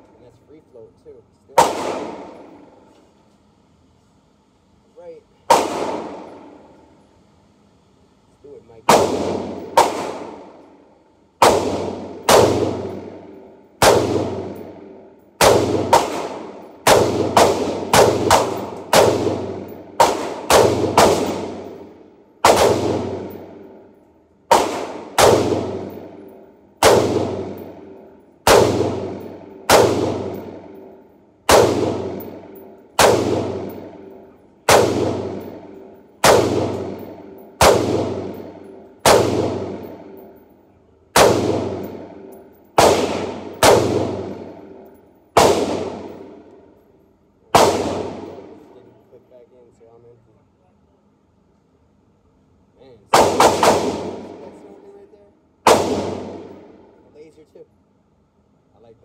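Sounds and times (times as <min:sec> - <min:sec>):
pistol shots echoing indoors: 0:01.6 - 0:02.9, 0:05.5 - 0:07.0, 0:08.8 - 0:48.7, 0:53.1 - 0:54.8, 0:55.6 - 0:57.1.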